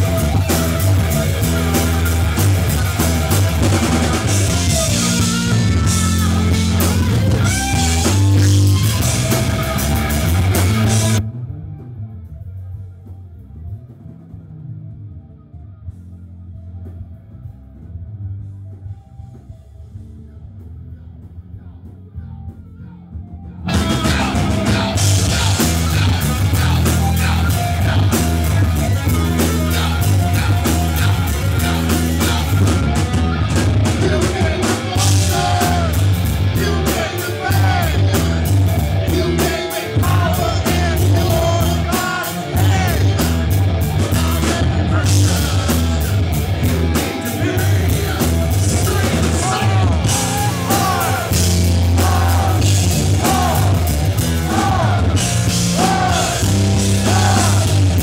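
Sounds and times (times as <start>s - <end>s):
electric guitar: 0.0s - 20.4s, 21.0s - 58.0s
bass guitar: 0.0s - 58.0s
drum kit: 0.0s - 58.0s
lead singer singing: 1.3s - 11.2s, 23.6s - 58.0s.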